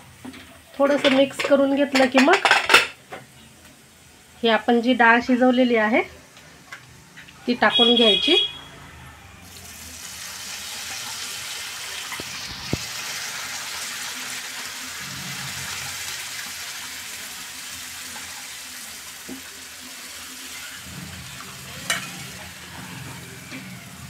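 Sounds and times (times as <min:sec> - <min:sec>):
hot oil sizzling: 0:00.0 - 0:08.8, 0:09.4 - 0:24.0
utensils knocking against pan: 0:00.8 - 0:03.0.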